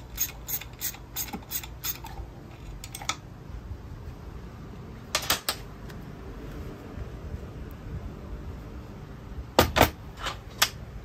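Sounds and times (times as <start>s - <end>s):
ratchet wrench clicking: 0.1s - 2.1s.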